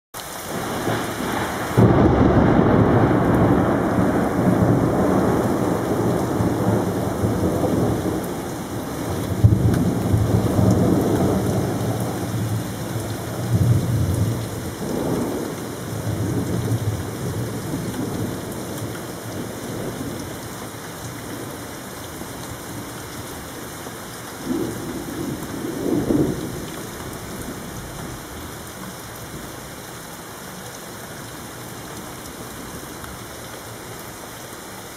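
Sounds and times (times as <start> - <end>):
heavy rain: 0.2 - 34.9
thunder rumbling: 0.5 - 20.3, 24.4 - 28.3.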